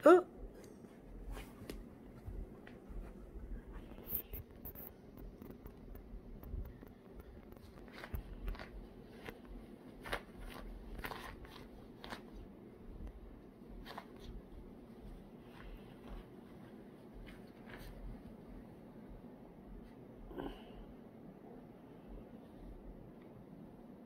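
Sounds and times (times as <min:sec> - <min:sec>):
rustling of bedding: 0:00.5 - 0:04.9, 0:05.5 - 0:20.2.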